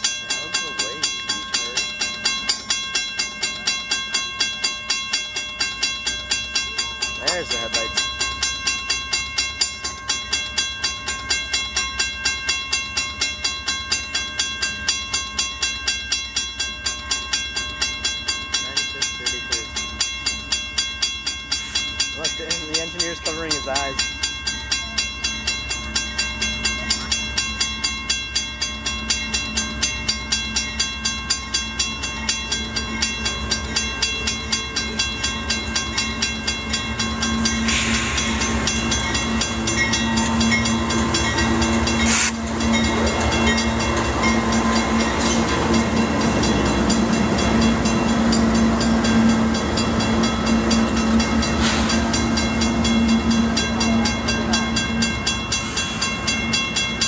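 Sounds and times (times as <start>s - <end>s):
crossing bell ringing: 0.0s - 57.0s
diesel locomotive engine: 0.0s - 57.0s
rail cars rattling over track: 0.0s - 57.0s.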